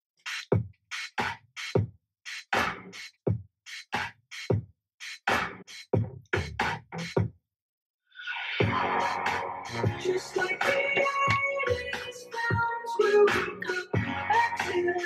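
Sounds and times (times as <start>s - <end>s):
drum-machine beat: 0.2s - 7.3s, 8.6s - 15.0s.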